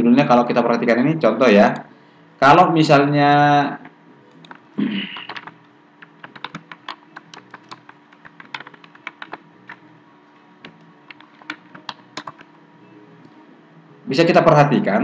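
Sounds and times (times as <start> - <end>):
faint steady hum: 0.0 - 15.0
keyboard typing clicks: 4.3 - 9.8, 10.6 - 12.5.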